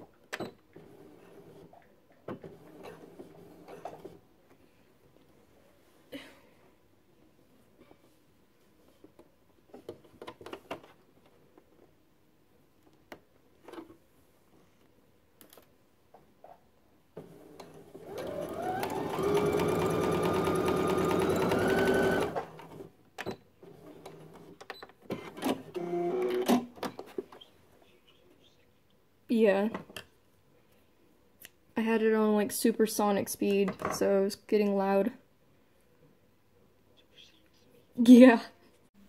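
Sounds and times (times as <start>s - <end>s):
sewing machine stitching: 17.2s - 22.9s.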